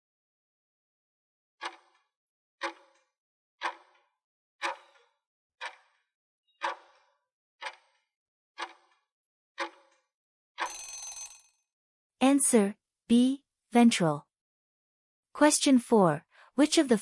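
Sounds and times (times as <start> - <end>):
clock ticking: 4.6 - 5.0, 6.6 - 6.8.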